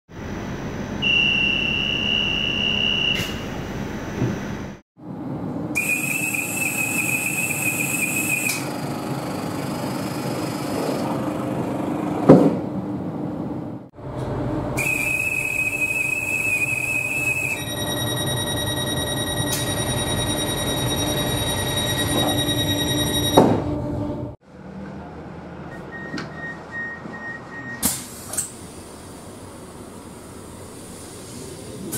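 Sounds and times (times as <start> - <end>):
shrill conductor's whistle: 1.0 - 3.4, 5.8 - 8.6, 14.8 - 17.7
door-closing warning beeps: 1.0 - 3.5, 16.5 - 23.6, 25.7 - 27.9
train doors shutting with thud: 3.1 - 4.6, 23.3 - 23.8.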